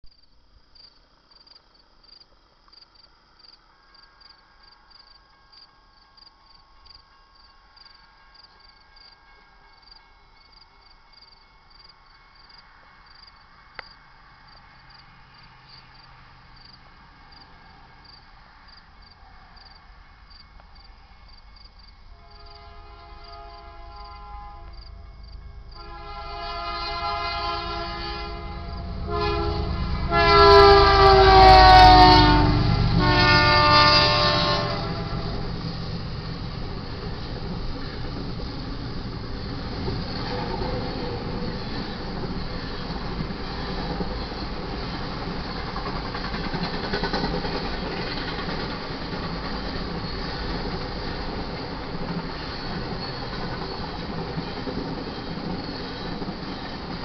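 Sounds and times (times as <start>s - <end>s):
freight train rumble: 4.4s - 57.0s
locomotive horn blasts: 22.1s - 24.8s, 25.8s - 35.5s.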